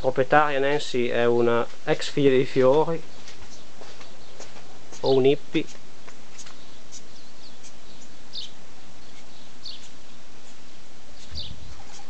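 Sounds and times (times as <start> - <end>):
small birds chirping: 0.0 - 12.0
steady hiss: 0.0 - 12.0.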